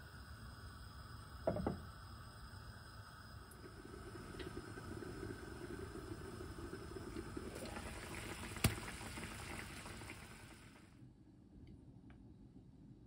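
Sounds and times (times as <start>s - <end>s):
sauce bubbling and sizzling in pan: 0.2s - 10.9s.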